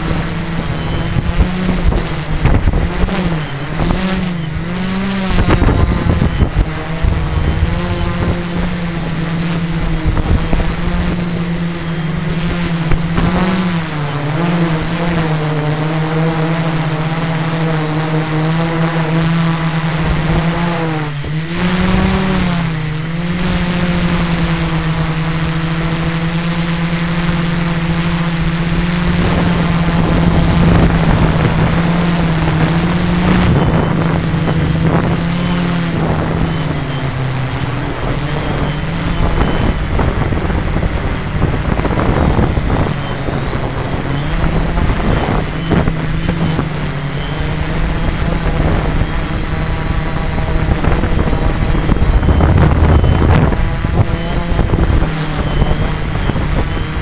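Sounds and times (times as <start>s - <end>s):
quadcopter propellers humming: 0.0s - 57.0s
wind buffeting microphone: 0.0s - 57.0s.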